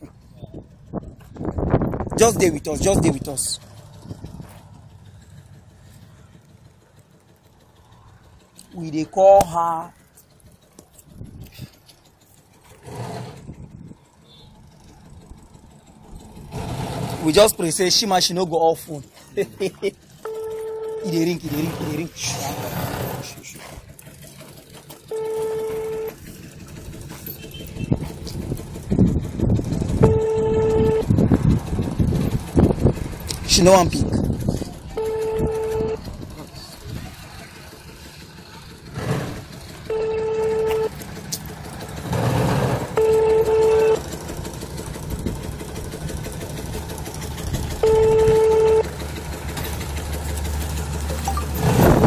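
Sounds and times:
street and vehicle noise: 0.0s - 52.0s
phone ringback beep: 20.2s - 21.1s, 25.1s - 26.2s, 30.0s - 31.1s, 35.0s - 36.0s, 39.9s - 40.9s, 43.0s - 44.0s, 47.8s - 48.9s.

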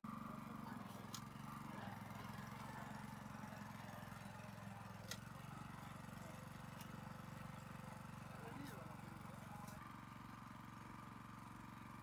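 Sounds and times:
small engine running: 0.1s - 12.0s.

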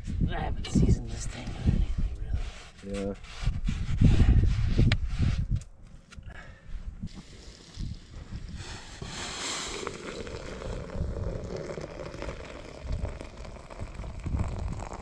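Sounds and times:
wind rumbling on microphone: 0.0s - 15.0s
water pouring into metal pot: 7.1s - 15.0s.

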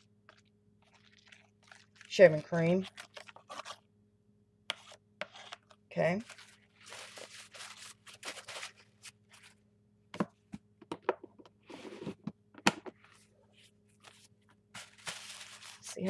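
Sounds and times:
faint steady hum: 0.0s - 16.0s
rustles and scrapes: 11.6s - 12.3s.

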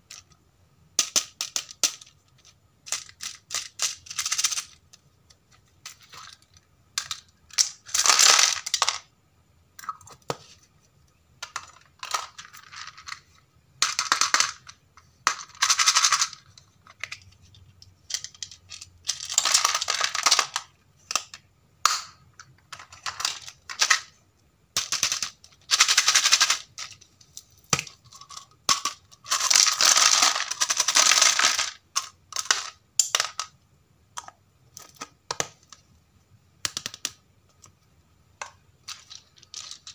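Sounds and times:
plastic pieces rattling in capsule: 1.0s - 5.0s, 5.6s - 9.1s, 11.4s - 21.4s, 22.5s - 27.1s, 27.7s - 33.6s, 38.4s - 39.9s
plastic toys clattering into tub: 18.1s - 24.2s, 24.8s - 27.0s, 27.7s - 33.6s, 38.8s - 39.9s.

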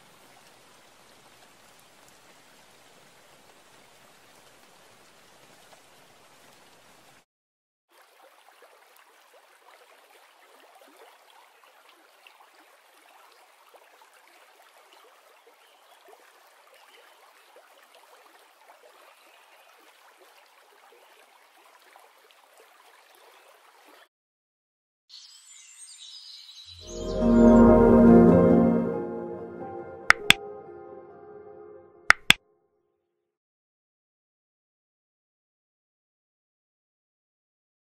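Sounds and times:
faint rain-like hiss: 0.0s - 7.2s.

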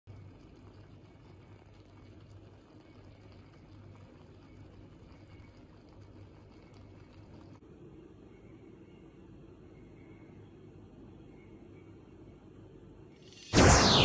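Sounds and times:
pot simmering with bubbling hiss: 0.1s - 7.6s
low hum: 13.2s - 14.0s.

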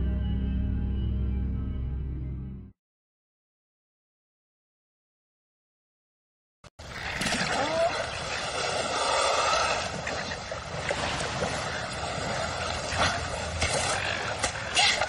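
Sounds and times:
water washing along shore: 6.8s - 15.0s.

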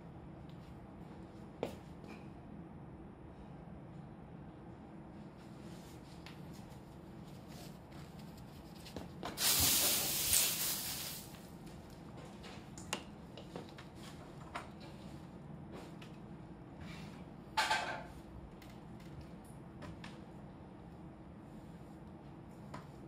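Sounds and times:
aerosol can spraying: 9.4s - 11.3s.

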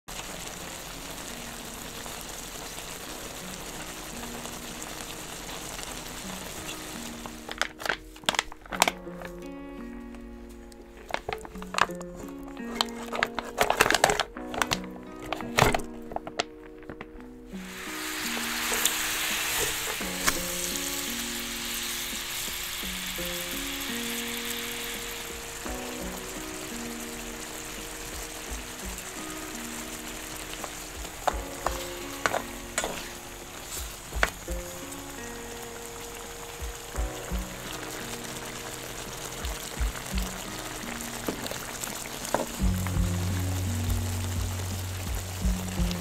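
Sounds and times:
soup simmering and sizzling: 0.0s - 46.0s
soft background music: 0.1s - 46.0s
wooden utensils stirring: 10.9s - 23.5s, 29.7s - 34.8s.

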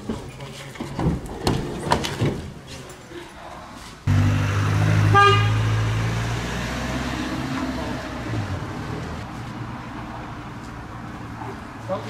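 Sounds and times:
vehicle engine running: 4.1s - 6.2s
car horn toot: 5.0s - 5.7s.

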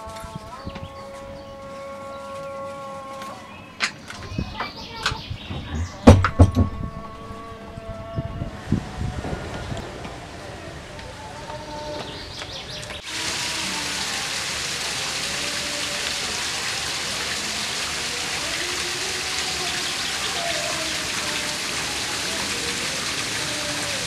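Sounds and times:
steady hiss like heavy rain: 7.1s - 24.0s.

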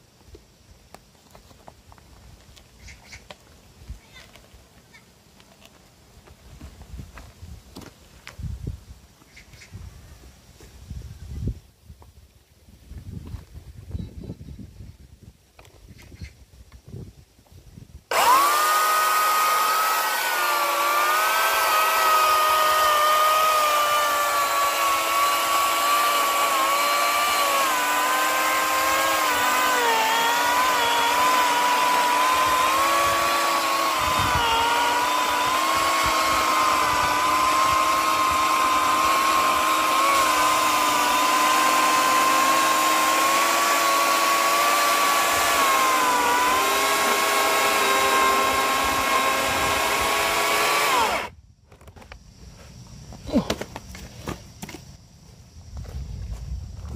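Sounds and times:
electric chainsaw cutting wood: 18.1s - 51.4s.

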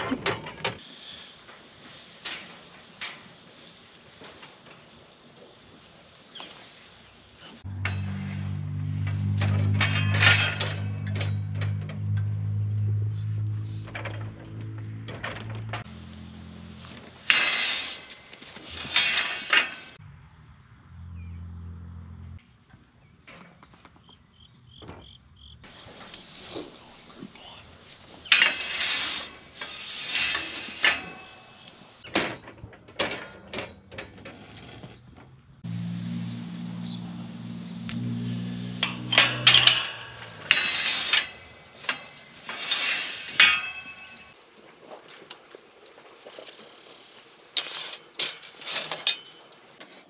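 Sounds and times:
knocks and rattles of metal gate: 0.0s - 0.8s, 7.7s - 16.0s, 16.9s - 20.0s, 28.1s - 35.4s, 38.0s - 44.4s, 47.6s - 50.0s.

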